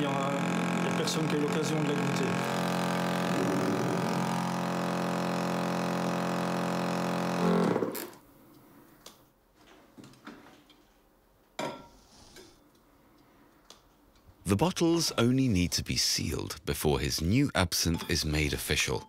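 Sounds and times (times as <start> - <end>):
machine motor humming: 0.0 - 8.2.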